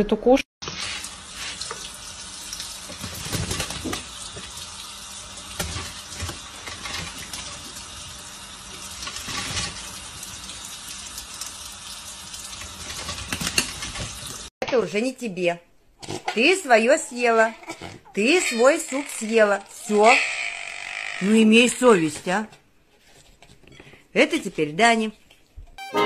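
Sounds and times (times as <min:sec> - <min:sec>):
water splashing on bird and board: 0:00.6 - 0:11.5.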